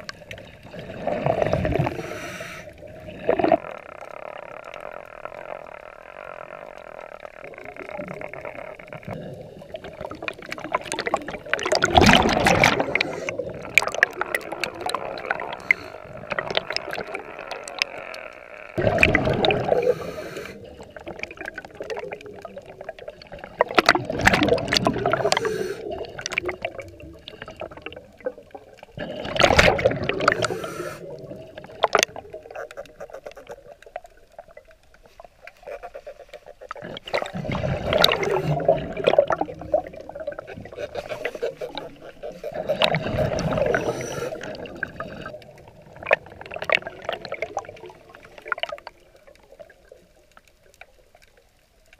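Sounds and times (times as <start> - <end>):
diver exhaling bubbles: 0.0 - 3.8, 7.4 - 18.0, 18.7 - 33.0, 36.4 - 48.9.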